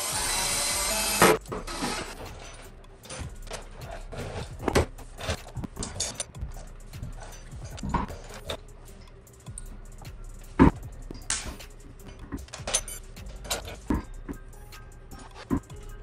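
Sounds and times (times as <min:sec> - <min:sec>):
metallic clicks and knocks: 0:01.4 - 0:16.0
sharp clack: 0:10.6 - 0:14.1.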